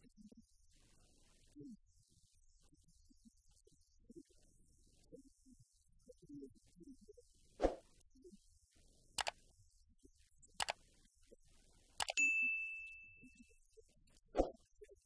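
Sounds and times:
short clicks and pops: 9.2 - 9.4, 12.0 - 12.2
bell ding: 12.2 - 13.4.

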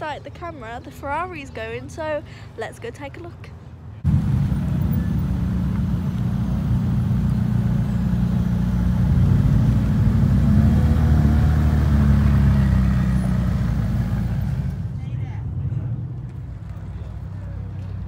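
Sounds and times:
car engine at low revs: 4.0 - 18.0.

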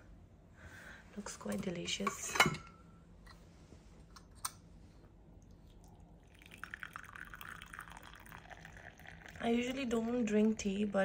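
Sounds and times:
tea pouring into cup: 5.4 - 11.0.

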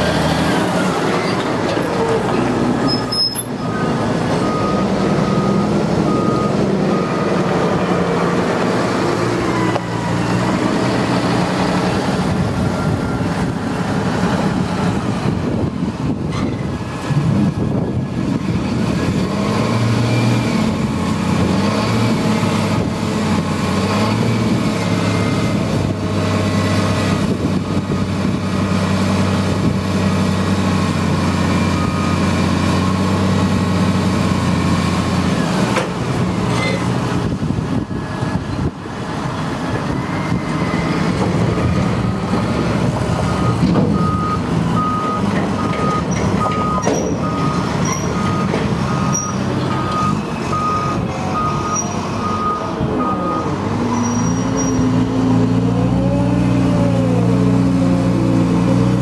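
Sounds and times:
tractor engine revving: 0.0 - 59.0.

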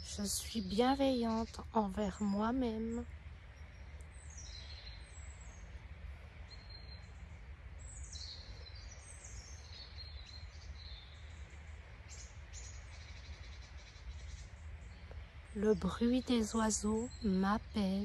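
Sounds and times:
low background rumble: 0.0 - 18.0
songbirds singing: 0.0 - 18.0.

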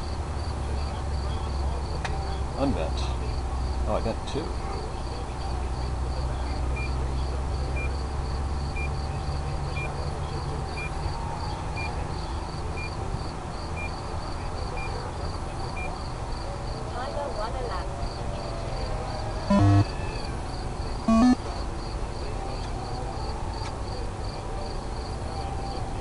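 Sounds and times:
faint high beep: 19.5 - 19.9, 21.1 - 21.4.

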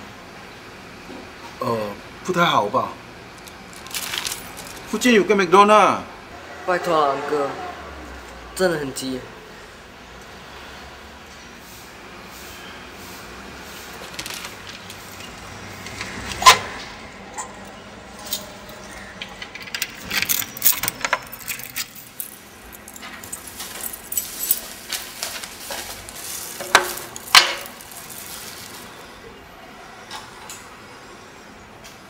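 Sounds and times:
keys jangling: 18.2 - 28.9.

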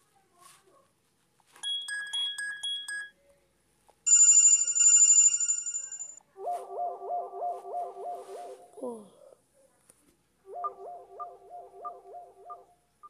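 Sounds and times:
bright phone ringing: 1.6 - 3.2, 4.1 - 6.2.

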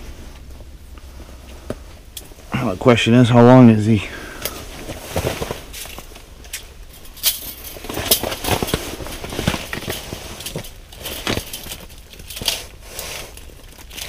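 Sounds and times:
rustling: 0.0 - 14.0
clothing fabric rubbing: 4.6 - 6.3, 7.6 - 11.2.

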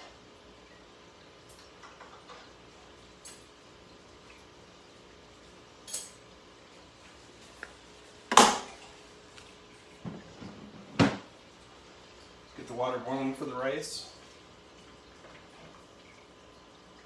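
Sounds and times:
utensils and dishes clinking: 5.8 - 6.2.

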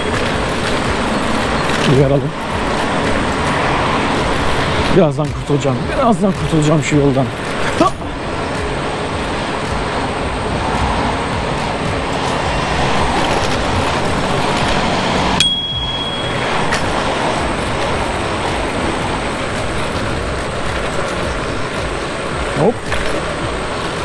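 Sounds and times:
road and traffic noise: 0.0 - 24.0
bell ding: 15.4 - 16.8.

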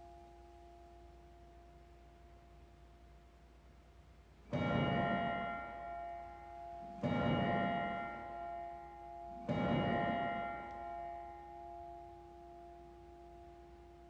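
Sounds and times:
bell tolling: 4.5 - 12.8.

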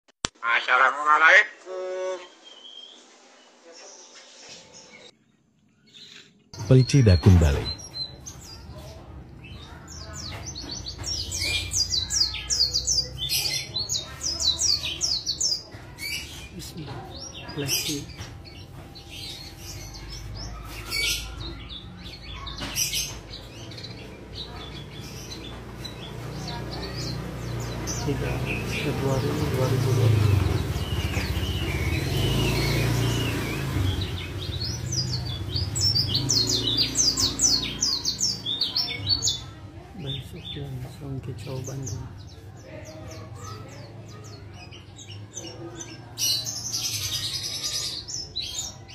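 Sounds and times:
bird twittering song: 2.1 - 48.9
low engine rumble: 16.5 - 42.4.

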